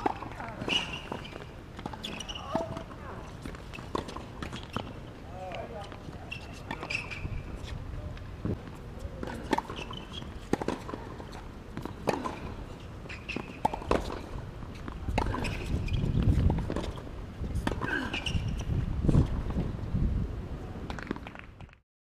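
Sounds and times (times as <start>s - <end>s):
racket hitting tennis ball: 0.0s - 4.9s, 9.2s - 17.0s
shoe squeaks: 0.6s - 5.1s, 5.9s - 7.8s, 9.0s - 11.5s, 12.7s - 17.0s, 17.9s - 18.8s.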